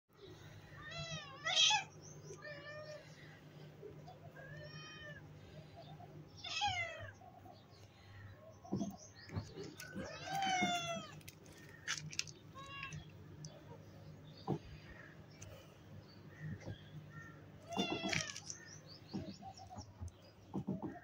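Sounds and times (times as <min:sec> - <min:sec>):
cat meowing: 0:10.0 - 0:11.2, 0:17.6 - 0:18.4.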